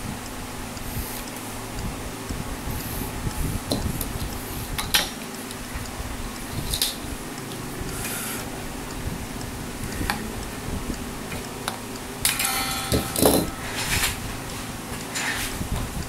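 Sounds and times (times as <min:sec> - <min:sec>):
metallic clatter with ring: 0:12.2 - 0:14.2.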